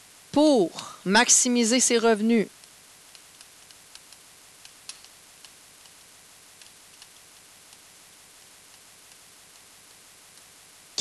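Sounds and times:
steady low hiss: 0.0s - 11.0s.

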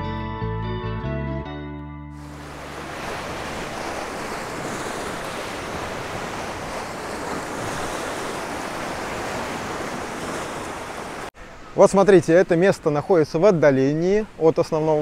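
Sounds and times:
waves washing over rocks: 2.2s - 11.3s
wind buffeting microphone: 2.3s - 11.3s.

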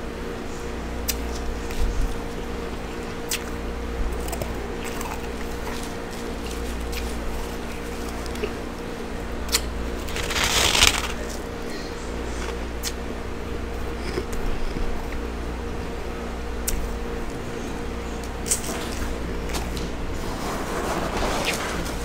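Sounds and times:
steady low hum: 0.0s - 22.0s
person crunching frost: 4.1s - 8.8s, 9.5s - 11.4s
small crackles: 9.6s - 11.4s.

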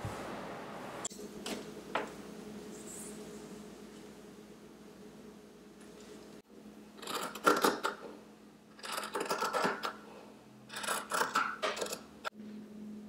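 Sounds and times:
scissors cutting cloth: 8.8s - 9.9s, 10.7s - 12.0s.

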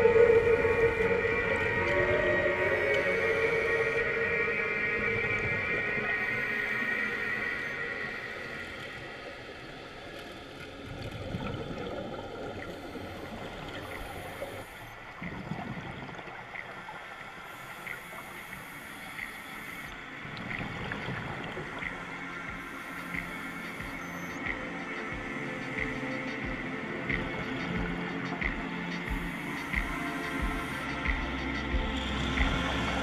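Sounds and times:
muffled underwater gurgling: 0.0s - 33.0s
faint regular ticks: 16.5s - 20.7s.

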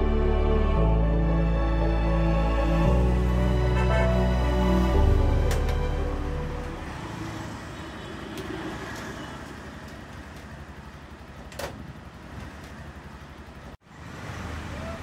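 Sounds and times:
engine idling: 9.8s - 13.8s.

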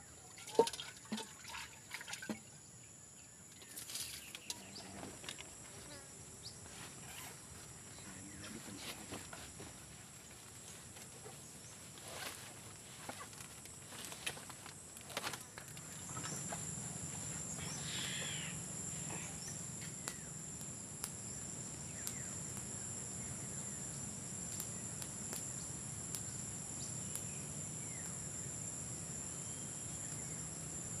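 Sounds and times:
insects droning: 0.0s - 31.0s
bird chirps: 17.6s - 20.0s.

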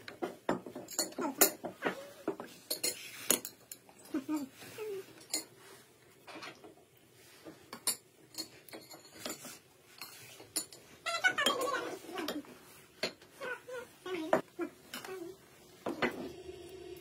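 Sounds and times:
forks clinking on ceramic plates: 0.5s - 1.7s, 2.7s - 4.5s.

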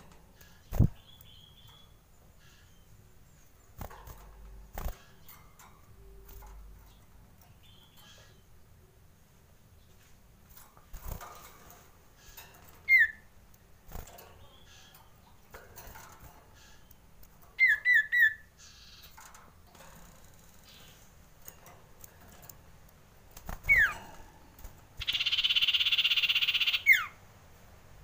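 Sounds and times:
bird fluttering in wire cage: 0.0s - 1.0s, 3.7s - 6.9s, 10.5s - 13.0s, 13.8s - 14.4s, 15.5s - 16.6s, 23.3s - 25.4s
bird rattling chatter: 19.0s - 26.9s
bird whistled calls: 25.0s - 27.2s.

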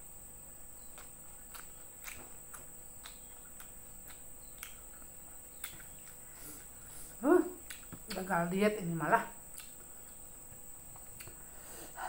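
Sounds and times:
insects droning: 0.0s - 12.0s
chewing with wet mouth clicks: 0.8s - 6.8s, 7.6s - 8.3s, 9.5s - 11.4s.

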